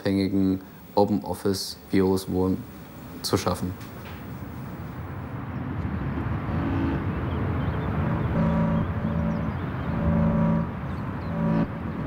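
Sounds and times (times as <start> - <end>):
low rumbling noise: 4.2 - 12.0
short pitched notes: 8.3 - 11.8.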